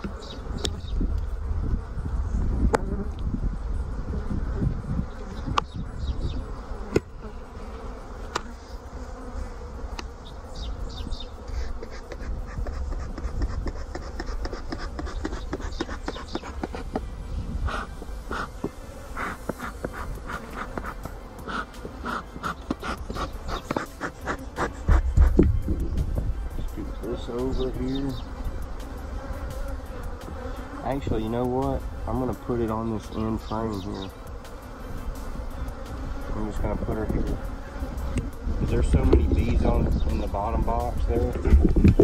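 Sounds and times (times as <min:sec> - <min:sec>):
bees passing close: 0:00.0 - 0:42.0
honeybees buzzing: 0:00.0 - 0:42.0.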